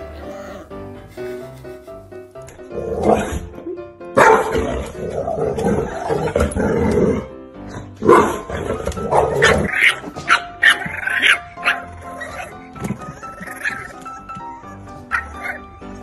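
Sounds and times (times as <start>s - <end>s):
background music: 0.0s - 16.0s
dog barking: 4.2s - 4.6s, 8.0s - 8.5s, 9.1s - 12.5s.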